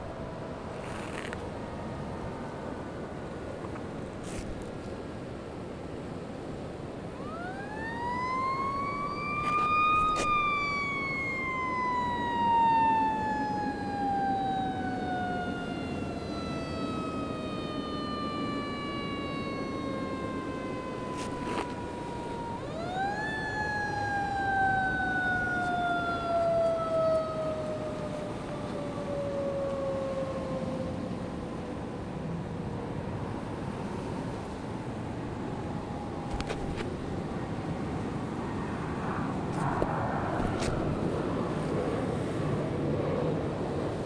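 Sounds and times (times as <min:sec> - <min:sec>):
siren winding up and falling: 0:07.1 - 0:31.1.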